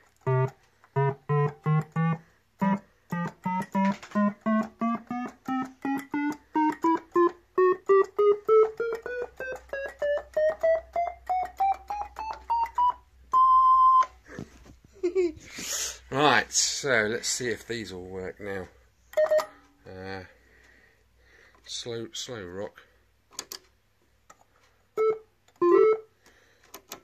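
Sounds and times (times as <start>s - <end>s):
electronic organ notes rising: 0.2s - 13.8s.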